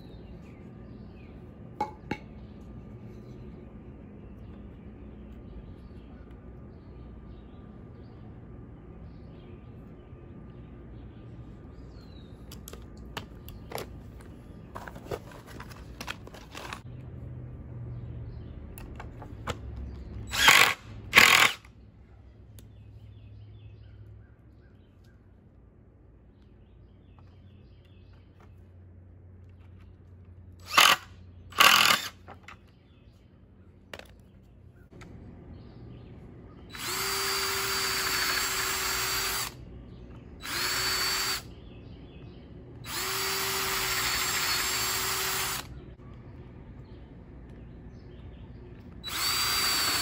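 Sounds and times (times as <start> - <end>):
cordless drill driving screws: 20.3 - 21.7, 30.6 - 32.3, 36.7 - 39.6, 40.4 - 41.5, 42.8 - 45.7, 49.0 - 50.0.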